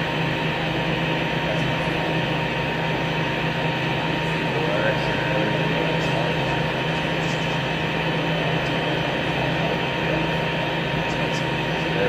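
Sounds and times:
ventilation machinery hum: 0:00.0 - 0:12.0.

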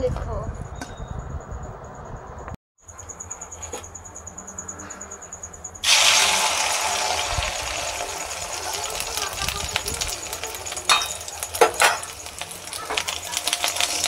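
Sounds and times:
egg sizzling in hot oil: 0:05.8 - 0:14.0.

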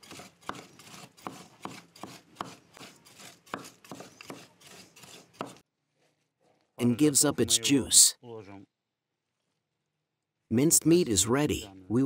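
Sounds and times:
knives chopping on wooden board: 0:00.0 - 0:05.6.

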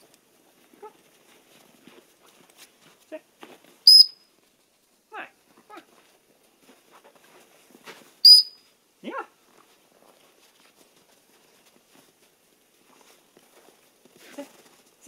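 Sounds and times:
high-pitched dog whistle blast: 0:03.9 - 0:04.2, 0:08.2 - 0:08.6.

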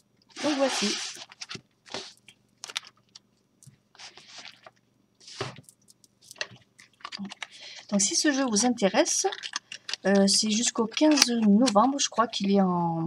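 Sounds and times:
cards and cardboard being handled: 0:00.3 - 0:02.9, 0:04.0 - 0:12.6.

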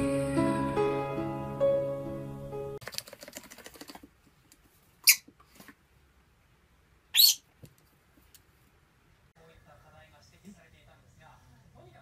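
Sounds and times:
parrot squawking: 0:05.0 - 0:05.2, 0:07.1 - 0:07.5.

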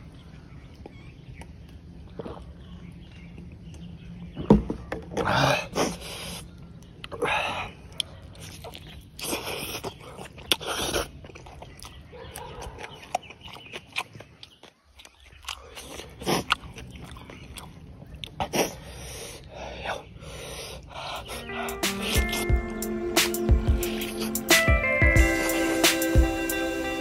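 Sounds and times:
chicken being torn and chewed: 0:07.9 - 0:18.8.

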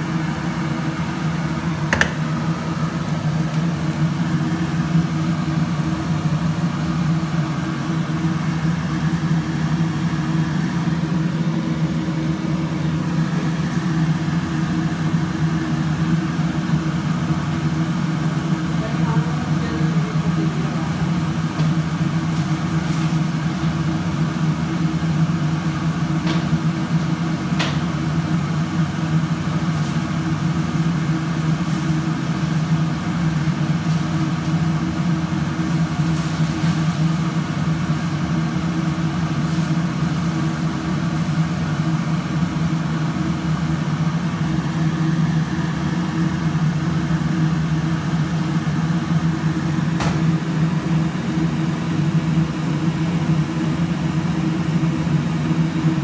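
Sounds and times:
low mechanical hum: 0:00.0 - 0:56.0
fish sizzling in oil: 0:00.4 - 0:11.4, 0:21.8 - 0:26.8, 0:28.8 - 0:41.6.

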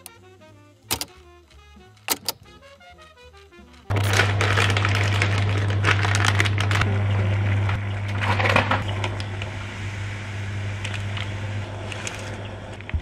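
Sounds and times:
steady low hum: 0:02.6 - 0:13.0
plastic packet crinkling: 0:03.8 - 0:06.9
sachet tearing open: 0:03.8 - 0:06.9.

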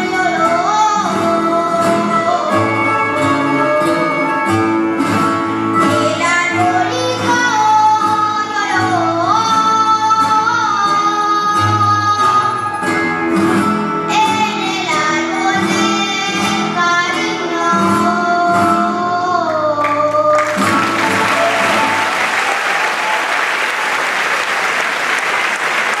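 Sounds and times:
child singing: 0:00.0 - 0:04.5, 0:05.8 - 0:12.7, 0:14.1 - 0:20.7
audience applause: 0:20.3 - 0:26.0
plucked string ensemble: 0:20.4 - 0:22.5.

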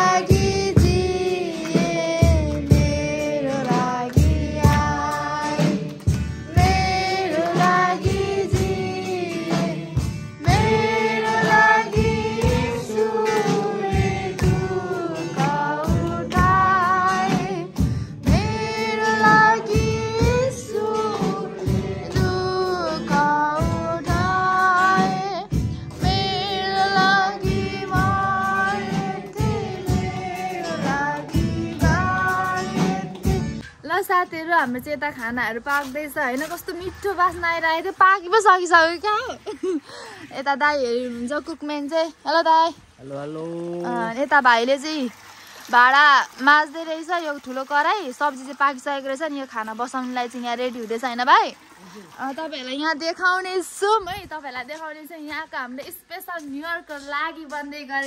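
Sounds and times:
song with singing over a beat: 0:00.0 - 0:33.7.

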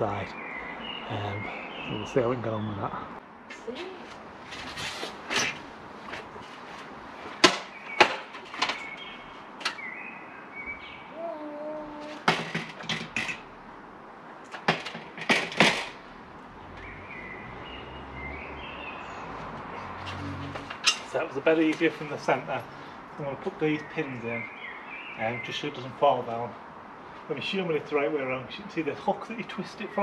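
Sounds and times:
metal cassette knocking and clanking: 0:14.5 - 0:16.0.

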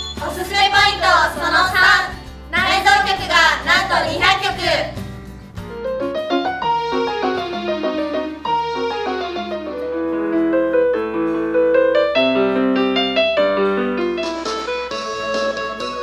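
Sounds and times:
electronic keyboard piano melody: 0:05.5 - 0:16.0.

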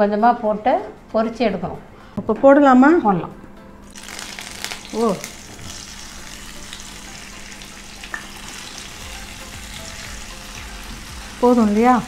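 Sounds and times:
tofu sizzling in hot oil: 0:03.9 - 0:12.0.

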